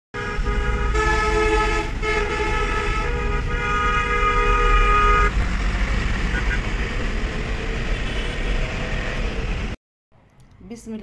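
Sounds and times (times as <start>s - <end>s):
vehicle horns honking: 0.2s - 5.4s, 6.2s - 6.8s, 7.8s - 8.8s.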